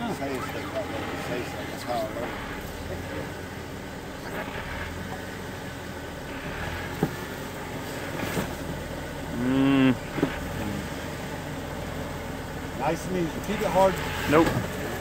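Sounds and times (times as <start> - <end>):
loud pitched sound: 0.0 - 2.7
car engine running low: 0.0 - 15.0.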